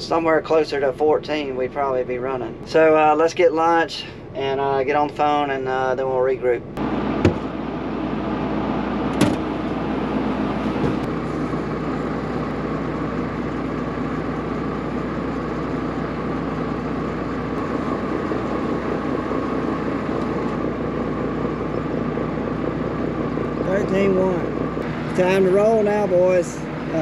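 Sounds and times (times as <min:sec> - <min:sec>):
vehicle engine running: 0:06.6 - 0:27.0.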